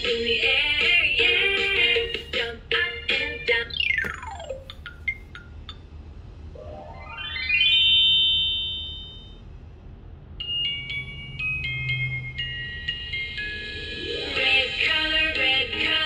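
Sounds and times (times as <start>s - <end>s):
falling pitch sweep: 6.5s - 9.3s
rising electronic tone: 6.5s - 9.4s
plinking electronic melody: 6.6s - 9.4s.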